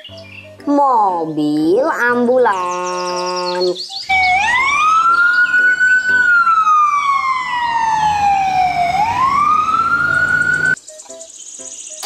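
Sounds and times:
ambulance siren wailing: 4.0s - 10.8s.

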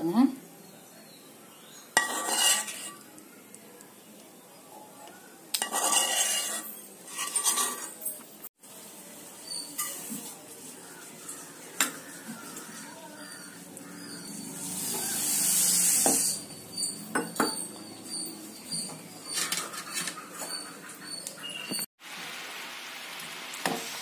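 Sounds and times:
steel bowl clinking on pan: 2.0s - 3.0s, 5.6s - 8.0s
water pouring with hiss: 14.3s - 16.4s, 22.0s - 24.0s.

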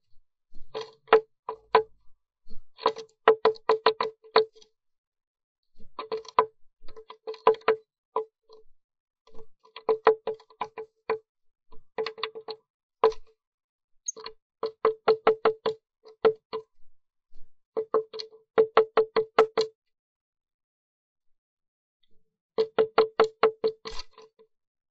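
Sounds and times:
bird pecking on wood: 2.9s - 4.5s.

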